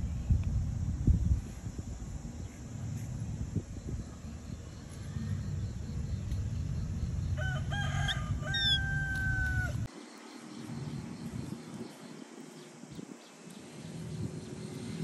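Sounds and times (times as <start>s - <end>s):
steady low rumble: 0.0s - 9.9s
rooster crowing: 7.4s - 9.9s.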